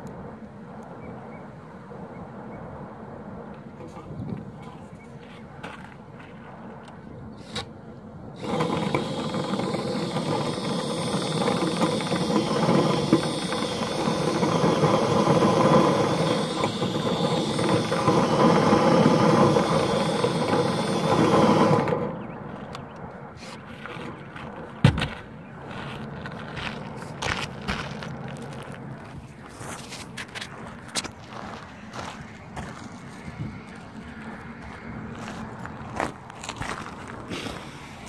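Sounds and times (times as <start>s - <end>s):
power drill spinning brush rod: 8.4s - 22.1s.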